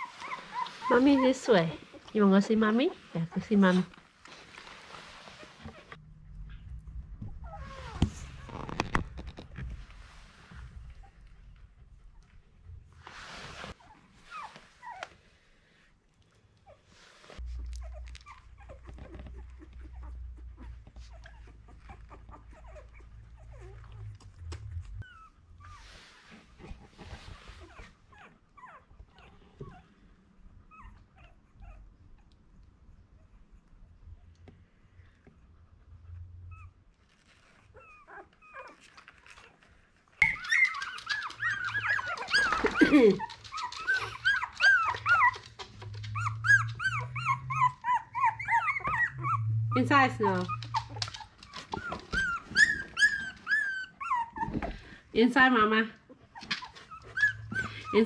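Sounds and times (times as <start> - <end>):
puppies squeaking and whimpering: 0.0 - 2.1, 7.2 - 9.4, 17.4 - 29.9, 36.4 - 54.9, 56.1 - 58.0
puppies crying loudly: 40.2 - 54.5.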